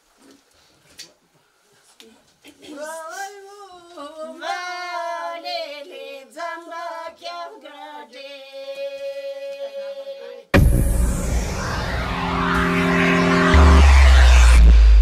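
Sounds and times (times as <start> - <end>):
woman singing unaccompanied: 2.6 - 10.5.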